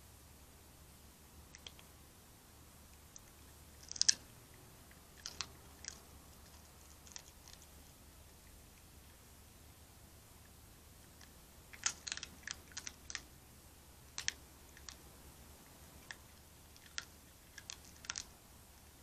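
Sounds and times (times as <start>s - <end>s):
fox crunching bones: 3.2s - 4.3s, 4.9s - 7.8s, 11.0s - 13.3s, 14.1s - 15.0s, 15.9s - 19.0s.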